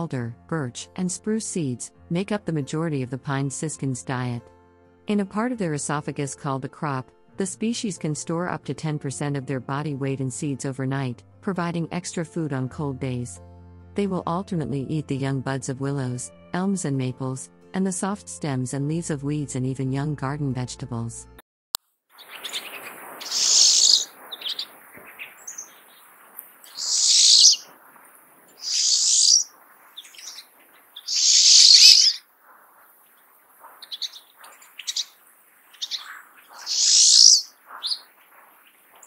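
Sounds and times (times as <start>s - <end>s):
bird calling high notes: 22.2s - 27.8s, 28.4s - 32.3s, 33.7s - 38.2s
bird chips: 22.2s - 39.0s.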